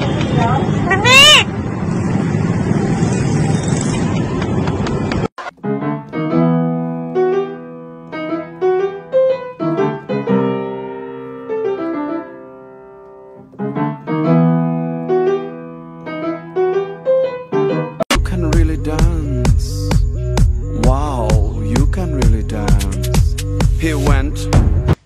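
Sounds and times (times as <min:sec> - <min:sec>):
solo piano music: 0:05.4 - 0:18.1.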